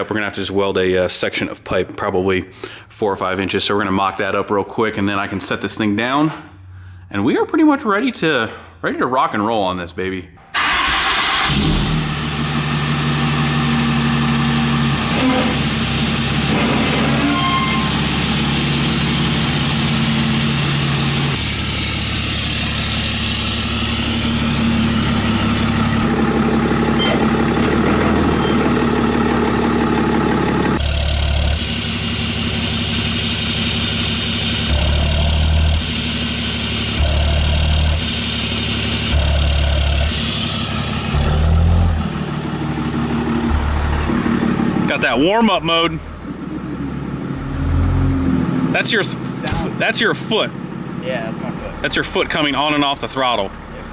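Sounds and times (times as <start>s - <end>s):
diesel pickup engine idling: 17.8s - 53.9s.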